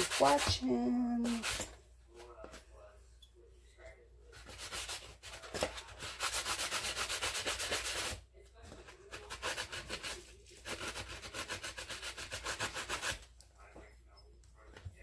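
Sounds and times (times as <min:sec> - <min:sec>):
sanding sponge rasping on metal: 0:00.0 - 0:00.6, 0:04.4 - 0:08.2, 0:09.1 - 0:13.2.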